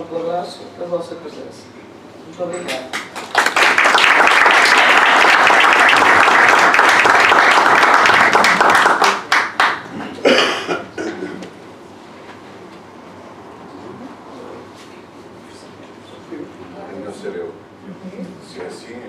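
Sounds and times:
audience applauding: 0:02.9 - 0:10.2.

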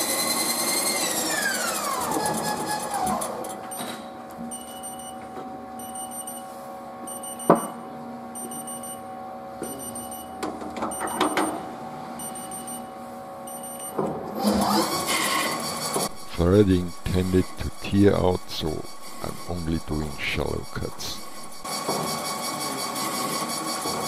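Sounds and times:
machine rising whine: 0:00.0 - 0:04.0, 0:13.5 - 0:24.0
lathe humming: 0:14.6 - 0:23.9.

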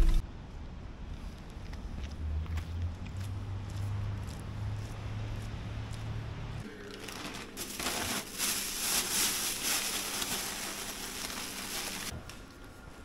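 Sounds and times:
plastic bag crinkling: 0:06.8 - 0:12.2.

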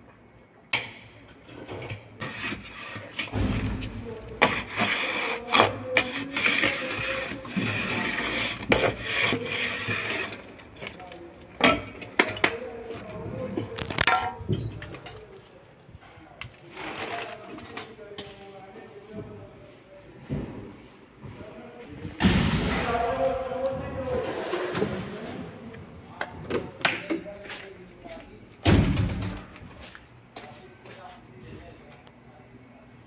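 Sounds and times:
scraping of mortar: 0:02.2 - 0:11.1.

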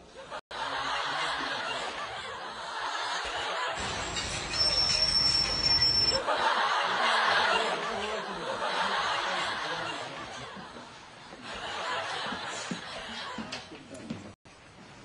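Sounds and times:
laughter: 0:00.2 - 0:03.9, 0:06.2 - 0:13.9.

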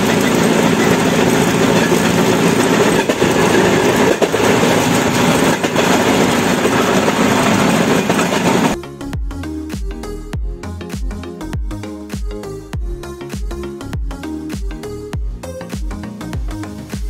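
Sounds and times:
motor trolley engine and wheels: 0:00.0 - 0:08.8
wheels clicking over rail joints: 0:00.0 - 0:08.8.

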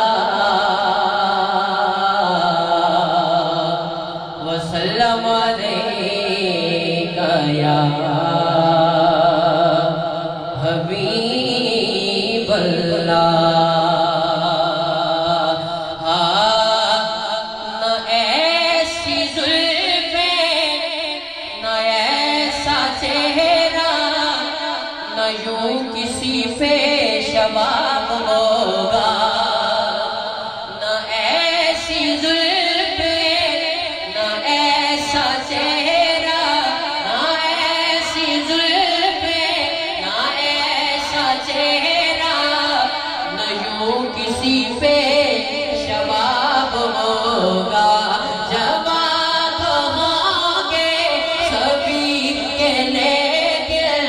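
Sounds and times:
person singing through sound system: 0:00.0 - 0:54.0.

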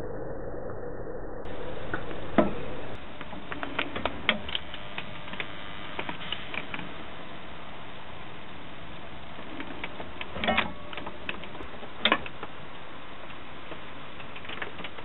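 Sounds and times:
steady hiss: 0:01.5 - 0:15.0
heat sealer clicking: 0:03.2 - 0:07.0, 0:09.2 - 0:15.0.

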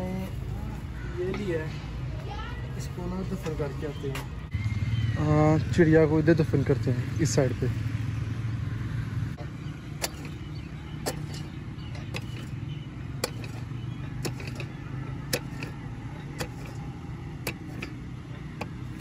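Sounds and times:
hoe chopping stony ground: 0:09.9 - 0:19.0.

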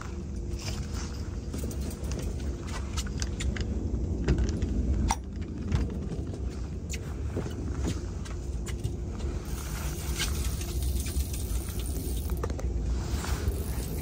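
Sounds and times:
small clicks and ticks: 0:08.7 - 0:12.7.

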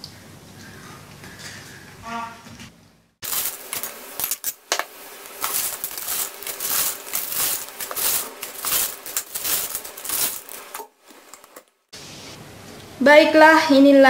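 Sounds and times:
paper crinkling: 0:03.2 - 0:04.4, 0:05.2 - 0:11.8.

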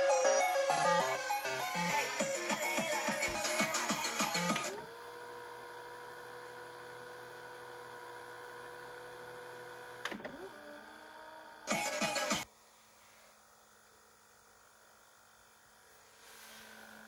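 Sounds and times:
tape deck motor whine: 0:00.0 - 0:12.5.

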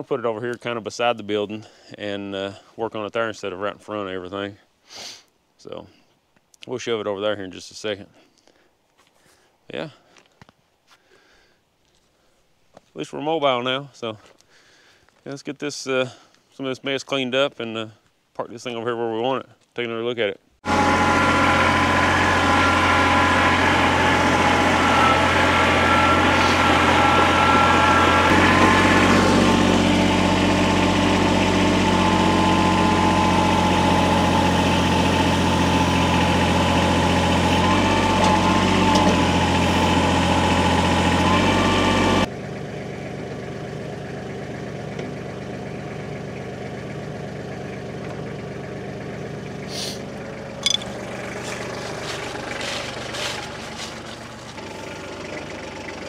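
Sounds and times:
large truck engine running: 0:20.6 - 0:56.0.

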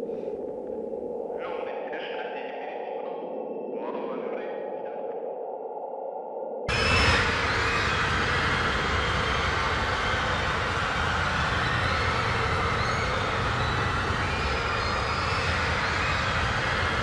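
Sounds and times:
train rumbling with hiss: 0:06.7 - 0:17.0.

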